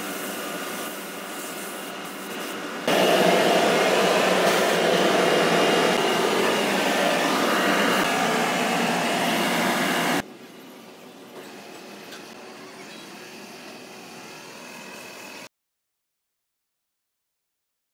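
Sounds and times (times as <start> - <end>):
rushing air in spray booth: 0.0 - 10.2.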